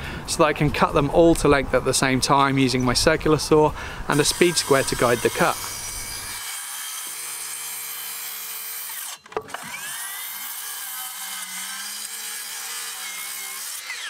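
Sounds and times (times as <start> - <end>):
circular saw cutting wood: 4.1 - 14.0.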